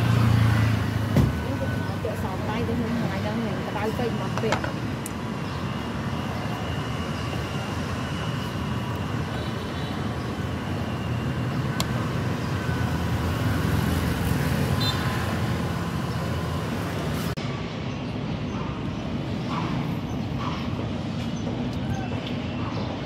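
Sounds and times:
vehicle engine: 0.0s - 18.0s
hum of passing vehicles: 0.0s - 23.0s.

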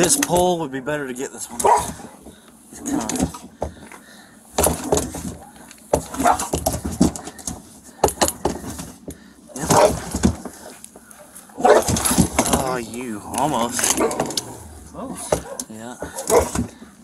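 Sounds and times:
dog barking: 1.6s - 2.1s, 6.1s - 6.5s, 9.7s - 10.0s, 11.2s - 12.0s, 15.2s - 16.6s.

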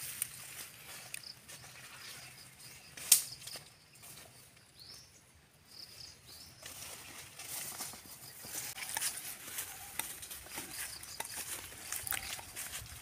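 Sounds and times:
footsteps through grass and undergrowth: 0.0s - 4.6s, 6.0s - 13.0s
twig snapping: 3.0s - 3.4s.

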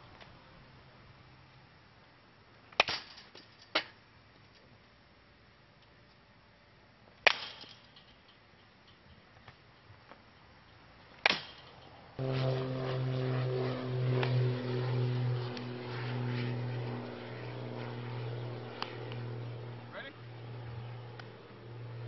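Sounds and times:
bat hitting baseball: 11.2s - 11.6s.

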